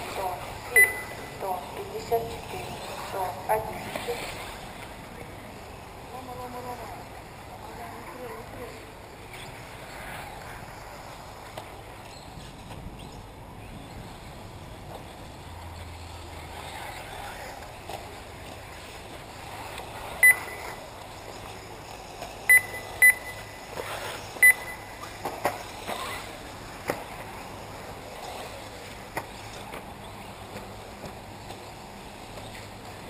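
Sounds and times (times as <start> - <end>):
outdoor background hiss: 0.0 - 33.0
short high electronic beeps: 0.8 - 1.4, 20.2 - 20.8, 22.5 - 23.6, 24.4 - 25.0.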